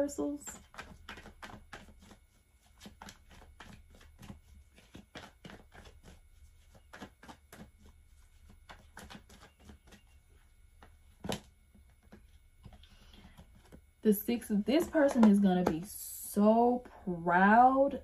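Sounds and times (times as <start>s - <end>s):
cards being shuffled: 0.5s - 10.2s.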